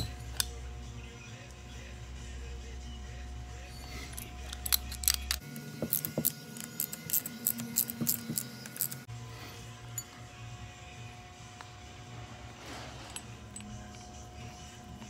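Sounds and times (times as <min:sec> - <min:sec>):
steady low hum: 0:00.0 - 0:15.0
metal hand tools clinking: 0:03.8 - 0:09.0.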